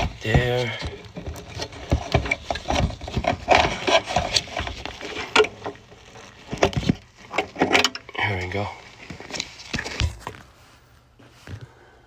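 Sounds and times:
plastic and wires scraping on board: 0:00.0 - 0:08.0.

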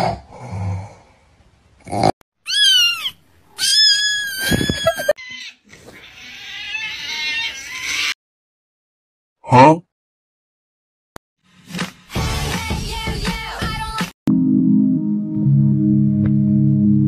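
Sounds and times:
cat meowing: 0:02.5 - 0:08.2
cat wailing cry: 0:02.5 - 0:08.2.

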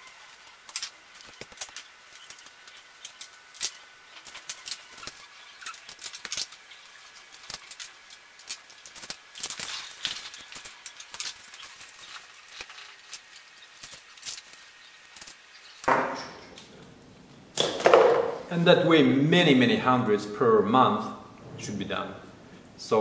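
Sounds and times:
small metal parts clicking: 0:00.0 - 0:15.9.

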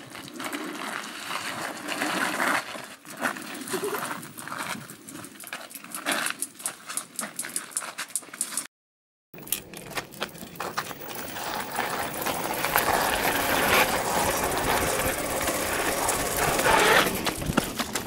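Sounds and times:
wheel rolling on wet tarmac: 0:00.0 - 0:05.5, 0:09.6 - 0:18.0
electric hub motor whirring: 0:09.4 - 0:18.0.

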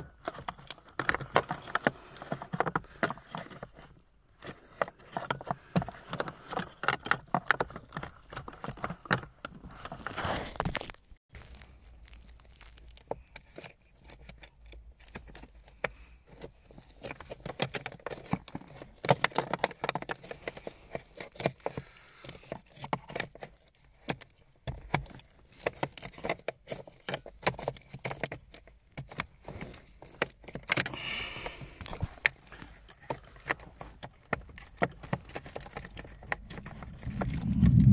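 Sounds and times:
clicks and knocks on plastic parts: 0:00.0 - 0:10.0, 0:13.1 - 0:36.8
rustling: 0:00.3 - 0:24.1, 0:31.5 - 0:37.9.

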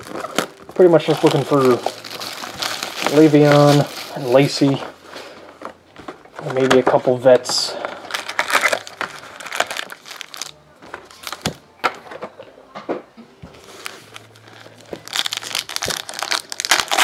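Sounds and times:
foil packs crinkling: 0:00.0 - 0:11.6, 0:13.6 - 0:17.0.

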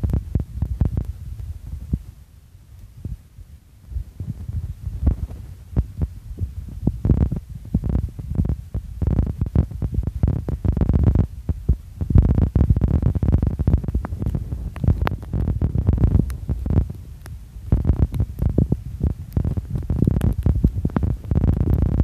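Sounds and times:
wind buffeting microphone: 0:00.0 - 0:02.2, 0:02.9 - 0:22.0.

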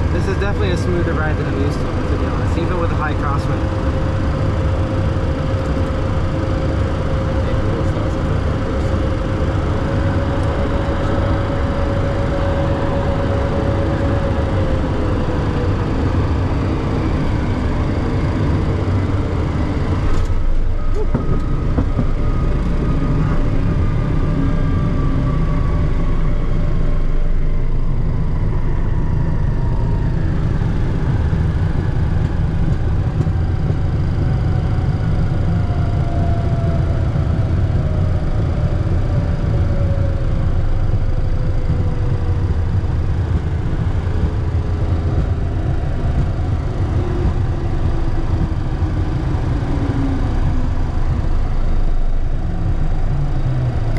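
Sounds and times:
jet engine whine falling in pitch: 0:00.0 - 0:53.9
jet engines low rumble: 0:00.0 - 0:53.9.

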